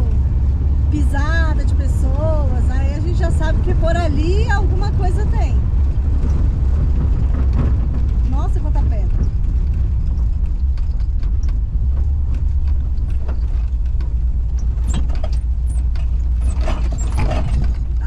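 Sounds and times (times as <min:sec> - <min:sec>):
van engine and tyres rumbling: 0:00.0 - 0:18.0
clicks and rattles in cabin: 0:05.8 - 0:18.0.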